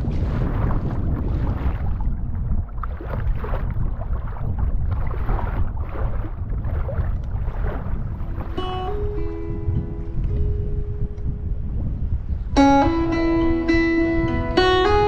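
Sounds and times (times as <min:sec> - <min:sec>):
water splashing against kayak hull: 0:00.0 - 0:09.4
wind buffeting microphone: 0:00.0 - 0:15.0.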